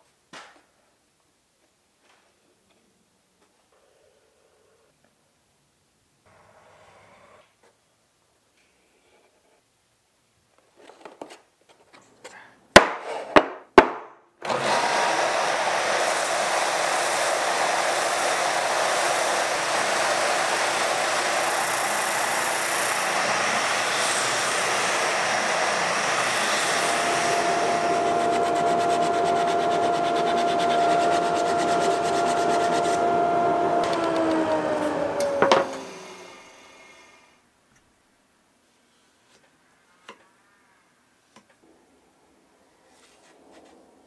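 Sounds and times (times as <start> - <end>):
spindle sander running: 14.4 - 36.9.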